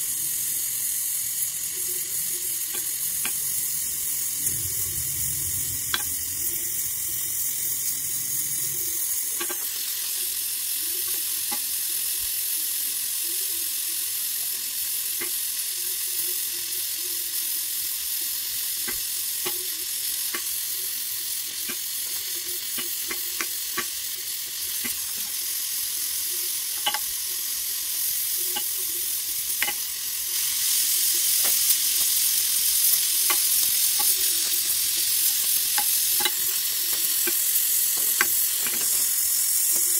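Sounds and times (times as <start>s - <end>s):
welding torch flame hissing: 0.0s - 39.9s
small crackles: 30.4s - 39.9s.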